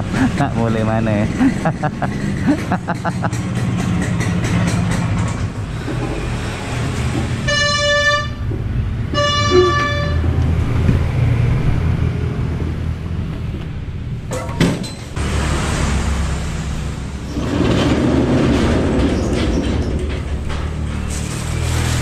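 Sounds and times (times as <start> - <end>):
scooter horn tooting: 7.5 - 8.4, 9.1 - 10.3.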